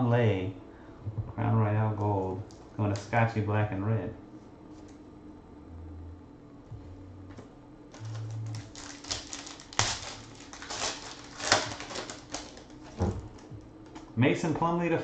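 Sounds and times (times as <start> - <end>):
foil pack crinkling and tearing: 8.0 - 13.4.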